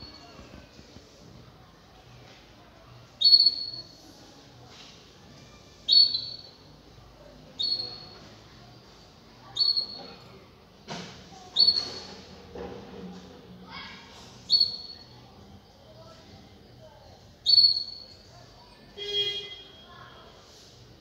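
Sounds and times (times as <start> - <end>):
canaries chirping: 3.2 - 3.8, 5.9 - 6.6, 7.6 - 8.2, 9.5 - 10.2, 11.6 - 12.1, 14.5 - 15.1, 17.4 - 18.1.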